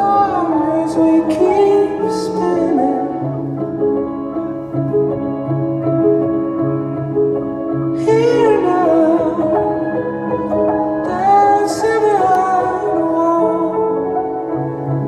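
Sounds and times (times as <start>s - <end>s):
man singing: 0.0s - 3.5s, 7.9s - 15.0s
slow piano keyboard music: 0.0s - 15.0s.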